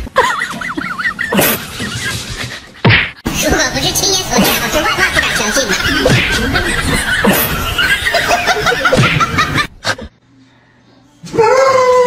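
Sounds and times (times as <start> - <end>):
person laughing: 0.0 - 2.9, 4.4 - 10.1.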